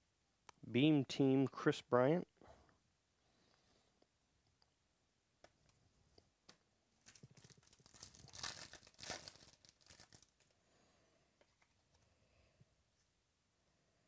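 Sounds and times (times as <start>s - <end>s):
foil wrapper tearing and crinkling: 7.0s - 10.5s.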